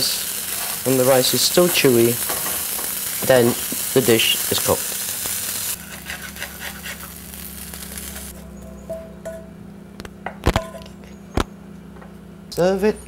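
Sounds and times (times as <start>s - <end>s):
rice sizzling in frying pan: 0.0s - 8.4s
spatula scraping and clicking: 5.9s - 7.1s.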